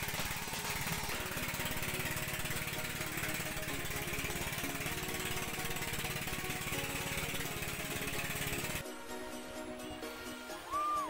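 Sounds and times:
boat engine chugging: 0:00.0 - 0:08.8.

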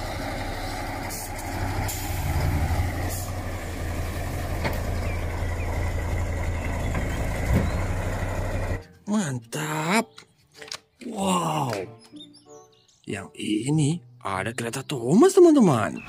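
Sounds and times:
truck engine idling: 0:00.0 - 0:09.0.

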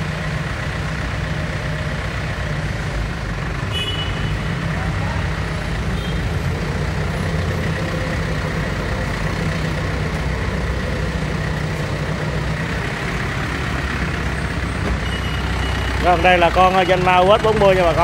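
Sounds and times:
tractor diesel engine idling: 0:00.0 - 0:18.0.

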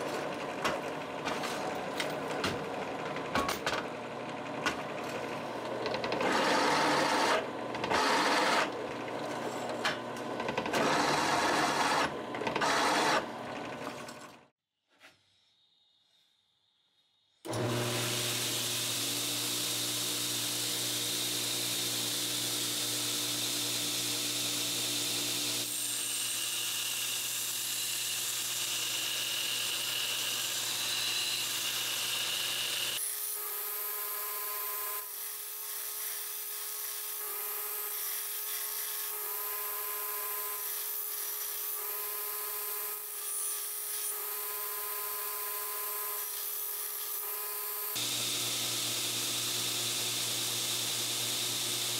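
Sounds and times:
belt grinder motor hum: 0:03.9 - 0:13.7, 0:17.5 - 0:25.7, 0:47.9 - 0:51.9.

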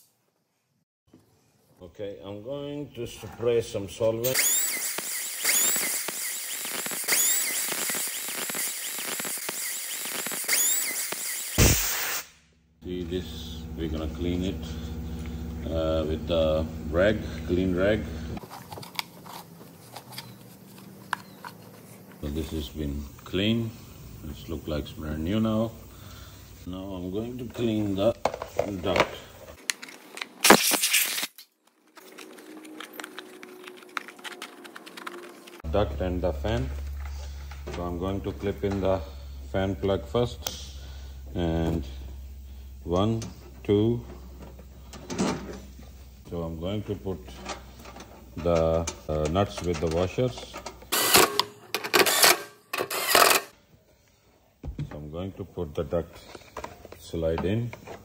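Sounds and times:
spray hissing: 0:06.3 - 0:12.3
short loud hiss: 0:11.6 - 0:12.4.

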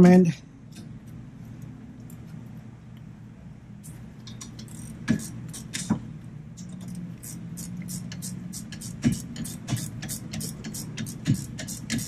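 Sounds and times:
steady low hum: 0:00.0 - 0:12.0
gear wrench clicking: 0:04.2 - 0:05.9, 0:06.6 - 0:12.0.

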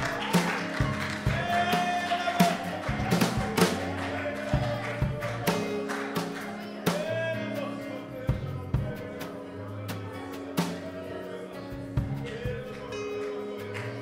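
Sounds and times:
drum hits: 0:00.0 - 0:06.3
worship band music: 0:00.0 - 0:14.0.

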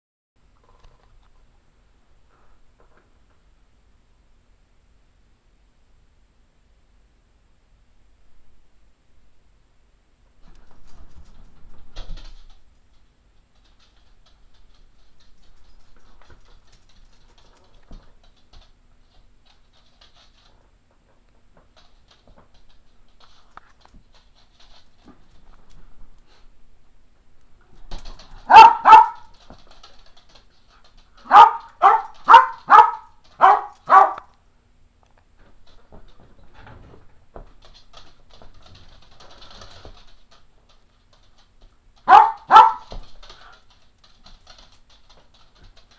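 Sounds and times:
dog barking: 0:28.4 - 0:29.3, 0:31.2 - 0:34.3, 0:42.0 - 0:42.9.

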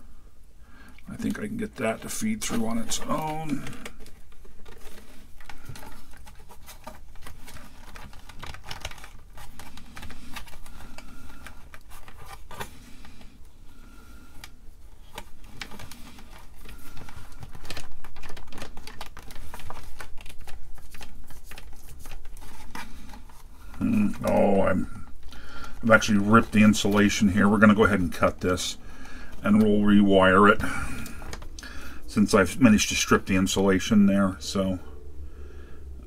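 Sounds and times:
cord scraping plastic case: 0:01.2 - 0:13.5, 0:14.1 - 0:28.7.

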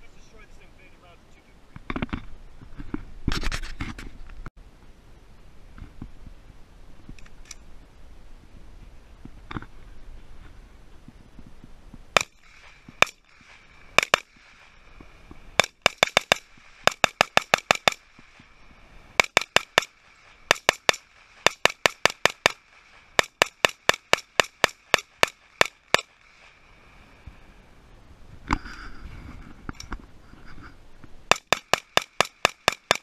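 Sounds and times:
rifle gunshots: 0:12.2 - 0:14.4, 0:15.6 - 0:18.1, 0:19.2 - 0:26.2, 0:31.3 - 0:33.0.

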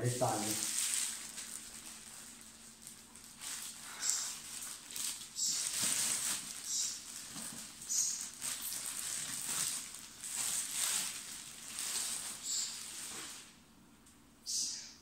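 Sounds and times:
plastic bag crinkling: 0:00.2 - 0:13.6.

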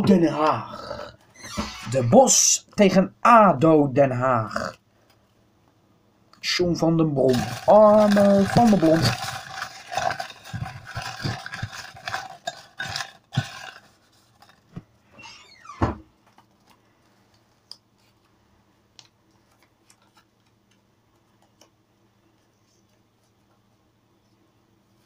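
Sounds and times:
lots clattering and rustling: 0:07.3 - 0:14.9.

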